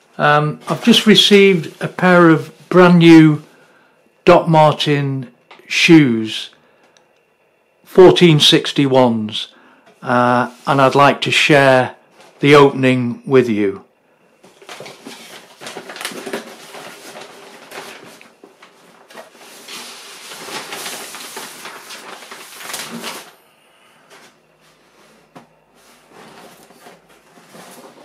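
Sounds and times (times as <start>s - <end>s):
plastic bag rustling and crinkling: 0.5s - 3.5s, 14.4s - 23.4s, 24.0s - 28.0s
handling of cardboard box: 14.4s - 23.3s, 24.8s - 28.0s.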